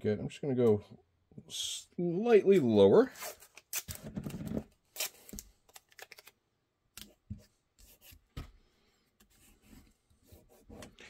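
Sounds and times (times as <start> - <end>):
tape being handled: 3.2 - 7.4.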